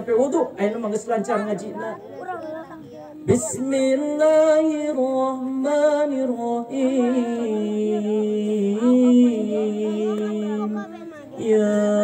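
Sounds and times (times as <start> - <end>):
man chanting through microphone: 2.9 - 12.0.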